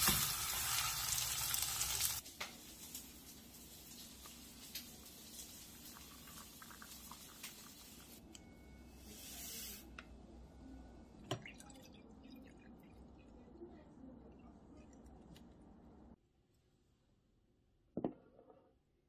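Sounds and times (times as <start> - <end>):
hot water pouring into a cup: 2.9 - 8.2, 11.3 - 13.2
water trickling into a glass: 11.3 - 13.4.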